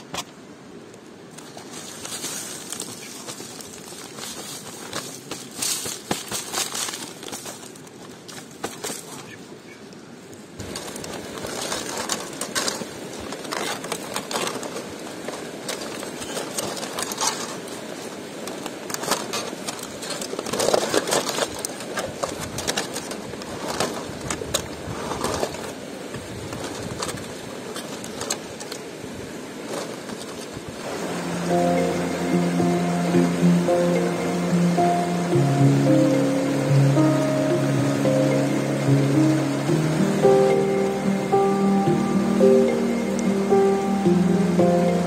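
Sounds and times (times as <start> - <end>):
aluminium foil crinkling: 1.4 - 9.3, 10.6 - 28.8, 29.6 - 30.6
steady rushing noise: 30.5 - 45.0.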